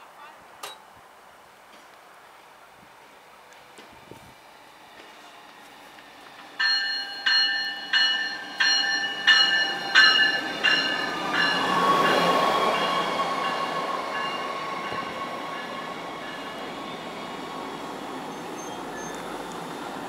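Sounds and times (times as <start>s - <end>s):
train cars passing: 2.3s - 20.0s
warning bell ringing: 6.6s - 16.5s
high wheel squeal: 18.3s - 19.4s.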